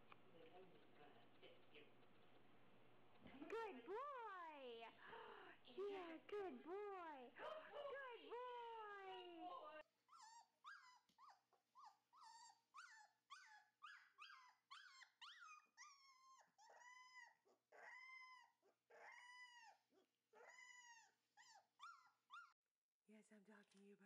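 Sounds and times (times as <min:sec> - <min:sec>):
puppy whimpering and howling: 0:10.1 - 0:22.6.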